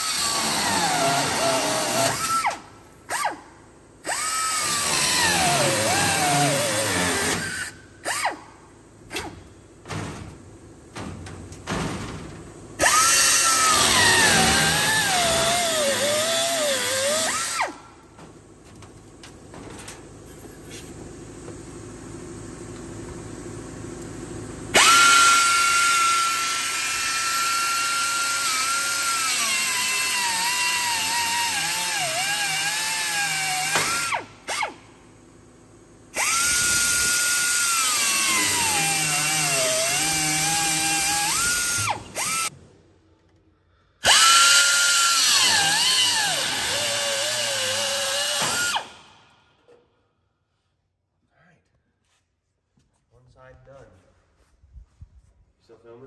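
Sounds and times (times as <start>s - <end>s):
cut-off wheel cutting metal: 12.8s - 17.7s, 24.7s - 34.8s, 44.0s - 49.1s.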